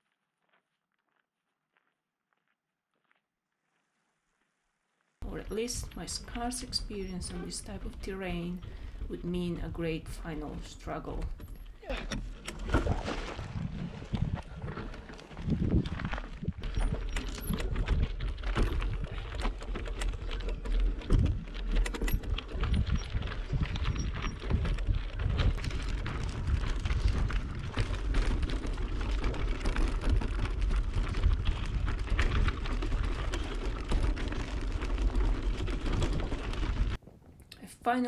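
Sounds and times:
bike rattling: 10.6 - 37.0
wind on microphone: 12.8 - 19.1, 22.2 - 28.4
bicycle tyres crunching on stones: 13.0 - 37.0.

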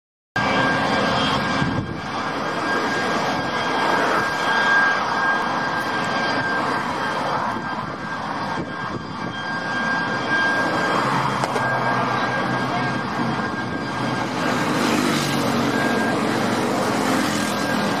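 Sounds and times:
high jet engine whine: 0.4 - 18.0
jet engines roaring: 0.4 - 18.0.

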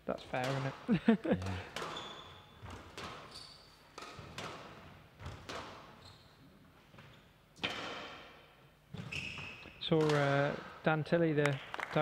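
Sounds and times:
squash ball striking rackets and walls: 0.4 - 0.8, 1.4 - 6.0, 6.9 - 10.8
court shoes squeaking: 1.4 - 8.2, 8.9 - 10.5.

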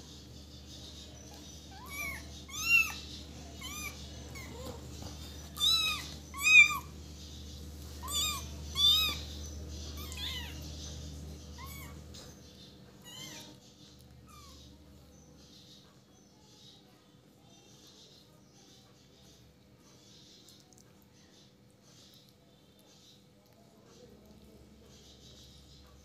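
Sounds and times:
kittens mewing: 1.2 - 7.0, 8.0 - 10.8, 11.4 - 12.4, 13.0 - 13.6.

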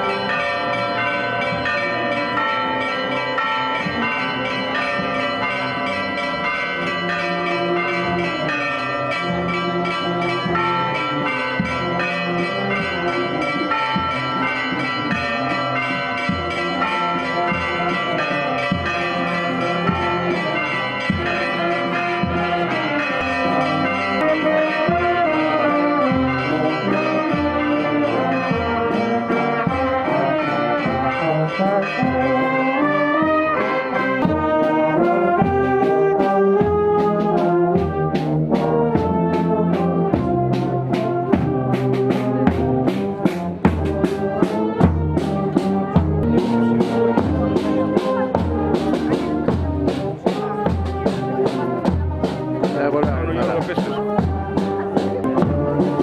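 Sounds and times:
church bells ringing: 0.0 - 56.0
marching brass band: 0.0 - 56.0
low drum beat: 36.5 - 56.0.

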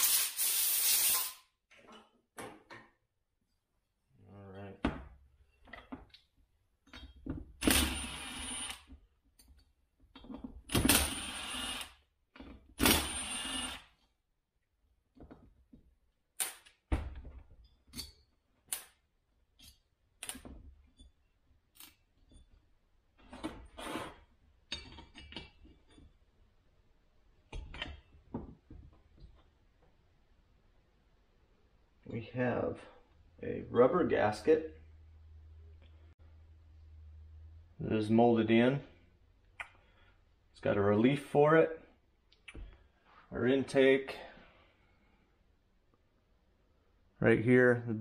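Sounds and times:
compressed air blasts: 0.0 - 1.4
tools clicking and knocking: 24.6 - 26.2.

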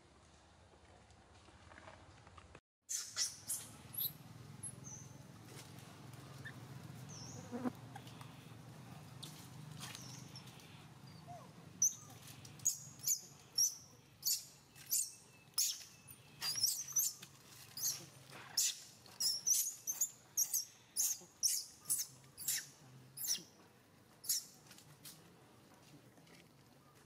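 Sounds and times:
baby monkey squealing: 18.6 - 23.5.

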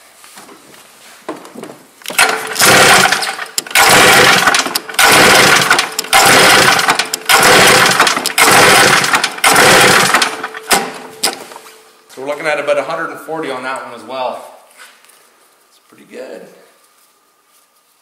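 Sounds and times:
snowmobile engine cranking: 2.0 - 11.4.

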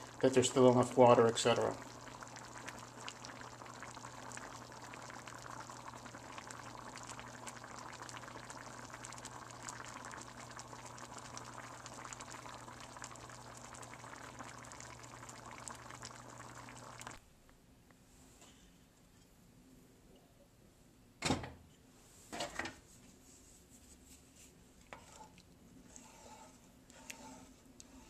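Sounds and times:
stew bubbling in a pot: 0.0 - 17.2, 24.8 - 28.0.

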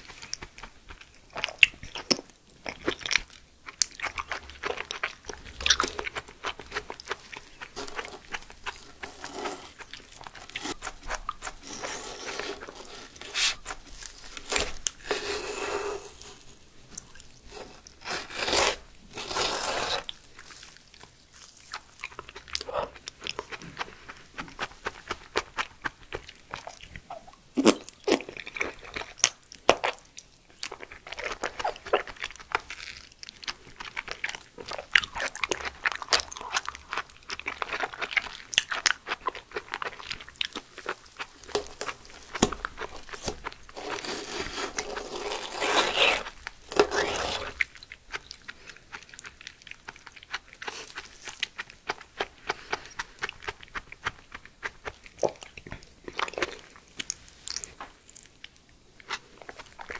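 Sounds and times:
wet slurping and chewing: 0.0 - 30.0, 30.6 - 58.3
metal spoon scraping gel: 7.6 - 16.6, 17.5 - 20.2, 41.4 - 48.2.

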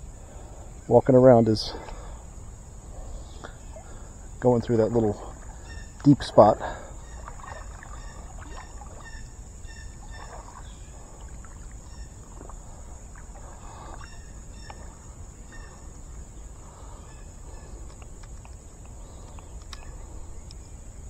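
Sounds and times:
high insect drone: 0.0 - 21.0
water sloshing around wading legs: 1.8 - 20.4.

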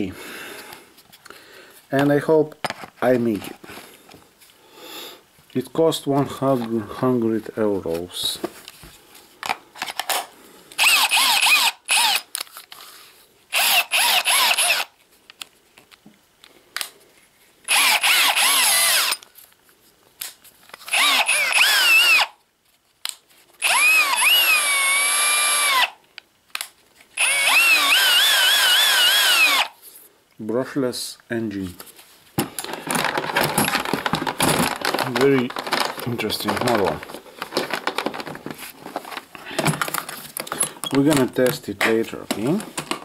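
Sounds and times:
cordless drill motor whine: 10.8 - 12.3, 13.5 - 14.9, 17.7 - 19.2, 20.9 - 22.3, 23.6 - 26.0, 27.2 - 29.8.

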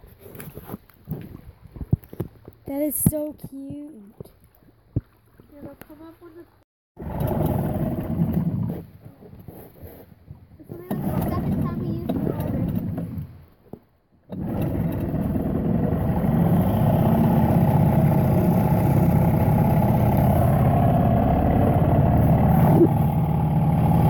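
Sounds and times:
outboard motor running: 7.0 - 9.2, 10.7 - 13.4, 14.3 - 24.0.

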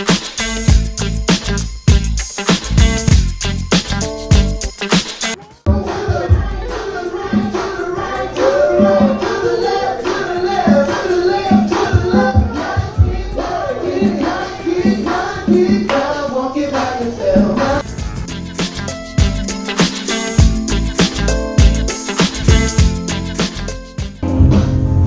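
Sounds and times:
singing over a beat: 5.7 - 18.0.

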